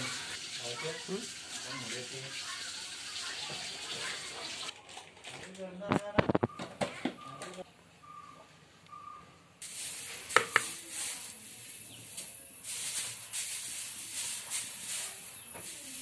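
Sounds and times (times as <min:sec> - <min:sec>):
hot oil hissing and crackling: 0:00.0 - 0:04.7, 0:09.6 - 0:16.0.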